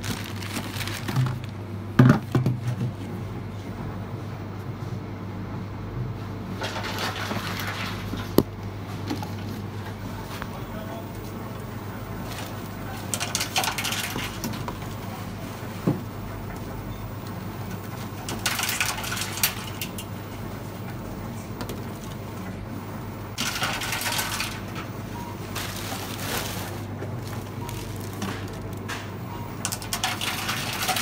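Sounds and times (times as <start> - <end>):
plastic bottles rattling through machine: 0.0 - 2.6, 13.0 - 15.0, 17.6 - 20.2, 23.4 - 31.0
steady low hum: 0.0 - 31.0.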